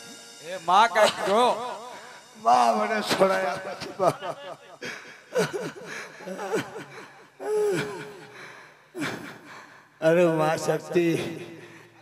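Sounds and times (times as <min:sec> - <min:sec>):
wordless vocal cries: 0:04.4 - 0:08.4.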